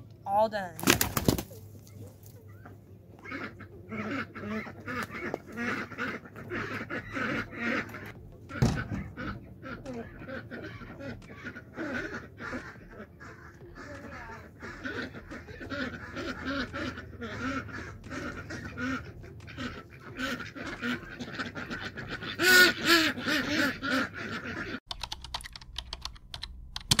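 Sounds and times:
ducks quacking: 0:01.5 - 0:24.8
keyboard typing: 0:24.9 - 0:27.0.

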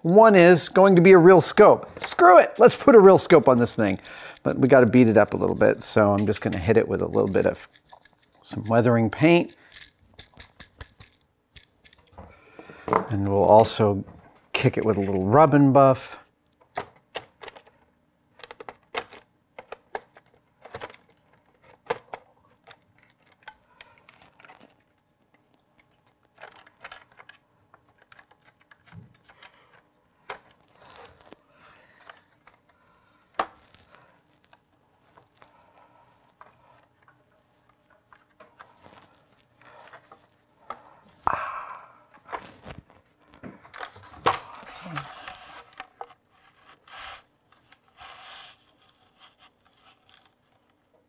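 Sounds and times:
crinkling rustles: 0:33.6 - 0:40.5, 0:42.2 - 0:50.9.

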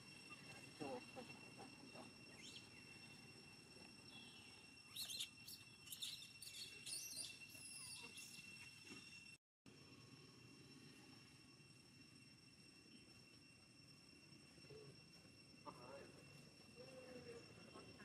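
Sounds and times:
high-pitched ringing tone: 0:00.0 - 0:18.0
animal chirps and squeaks: 0:04.9 - 0:08.6.

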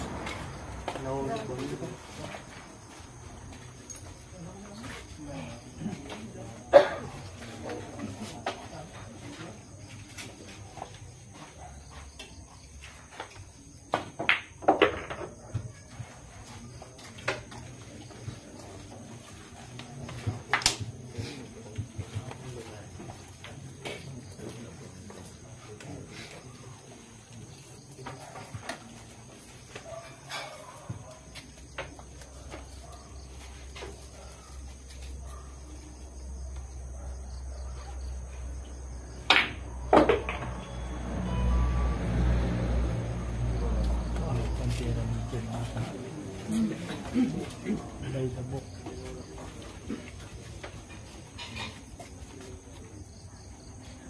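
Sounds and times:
pool balls clacking: 0:14.0 - 0:15.4, 0:39.2 - 0:40.8.

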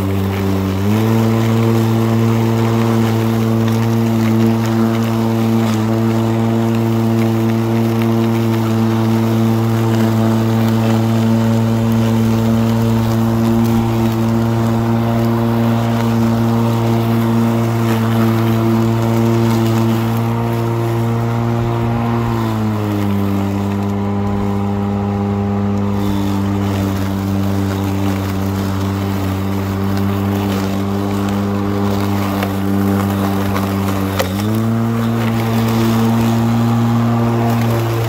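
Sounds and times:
electric lawn mower humming: 0:00.0 - 0:38.0.

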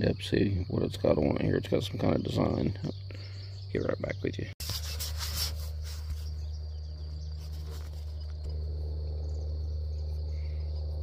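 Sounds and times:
insects chirring: 0:00.0 - 0:11.0
low hum: 0:00.0 - 0:11.0
handling rustling: 0:04.6 - 0:08.5.

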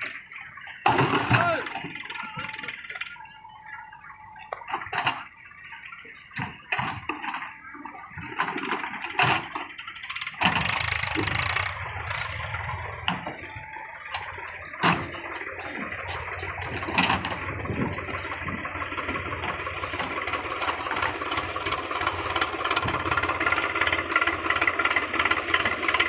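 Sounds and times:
diesel engine under load: 0:00.0 - 0:26.0.

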